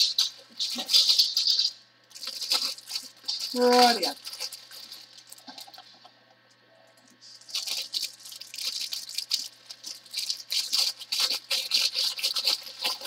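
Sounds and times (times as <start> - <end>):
plastic bags crinkling: 0.0 - 6.1, 7.0 - 13.0.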